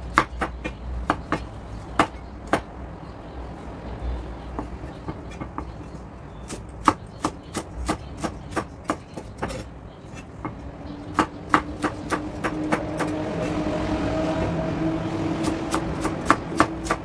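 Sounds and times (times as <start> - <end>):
cleaver chopping on wooden board: 10.4 - 13.2.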